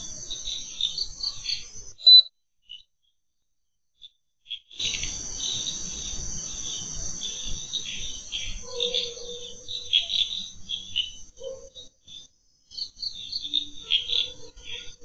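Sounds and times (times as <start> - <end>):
crickets trilling: 0.0 - 3.2, 4.0 - 15.0
short loud high chirp: 2.0 - 2.3.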